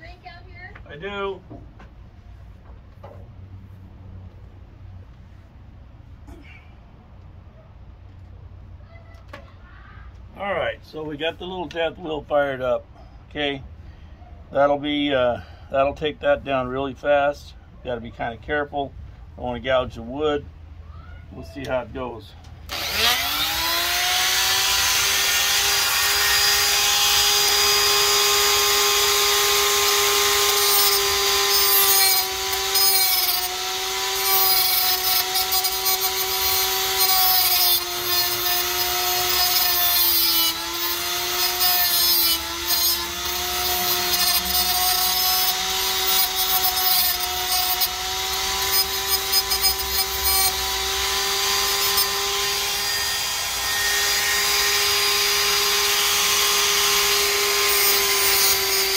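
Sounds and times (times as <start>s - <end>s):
die grinder high whine: 22.7s - 58.9s.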